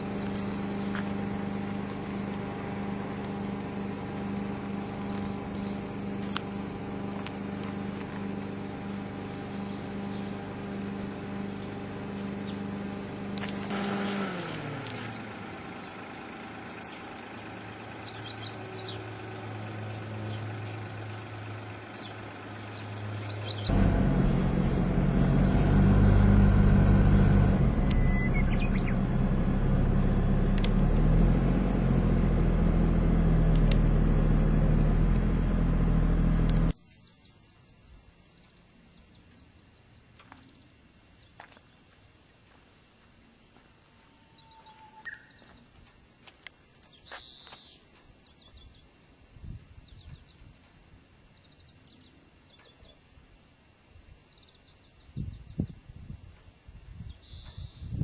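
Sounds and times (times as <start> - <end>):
car engine running: 0.0 - 36.8
road noise: 0.0 - 36.8
bird chirps: 0.2 - 0.9, 3.8 - 5.9, 8.3 - 13.2, 18.0 - 19.1, 20.2 - 23.7, 27.8 - 29.0, 36.8 - 58.0.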